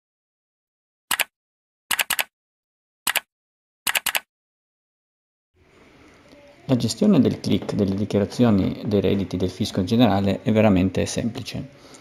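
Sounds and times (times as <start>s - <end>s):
computer mouse clicks: 1.1s - 1.3s, 1.9s - 2.3s, 3.1s - 3.3s, 3.9s - 4.3s.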